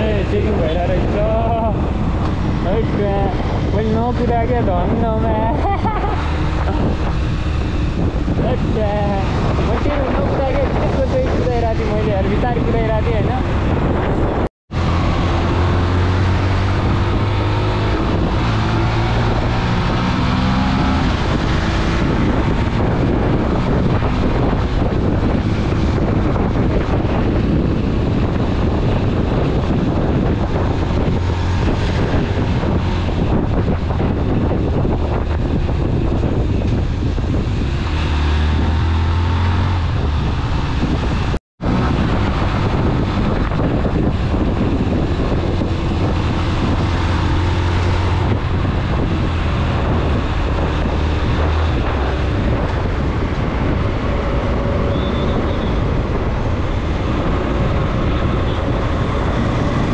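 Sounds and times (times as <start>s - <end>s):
motorcycle engine hum: 0.0s - 59.9s
wind buffeting microphone: 0.0s - 59.9s.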